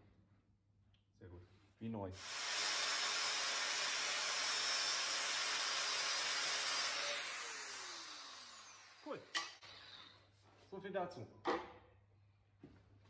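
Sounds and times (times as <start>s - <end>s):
angle grinder grinding steel: 2.2s - 9.6s.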